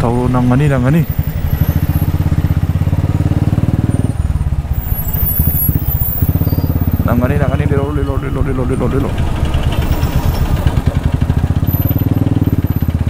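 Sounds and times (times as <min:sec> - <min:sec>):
motorcycle engine at low revs: 0:00.0 - 0:13.0.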